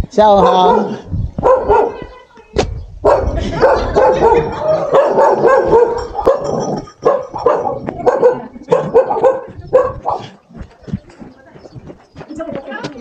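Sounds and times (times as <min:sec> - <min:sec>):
dog barking: 0:00.3 - 0:02.1, 0:03.0 - 0:10.4.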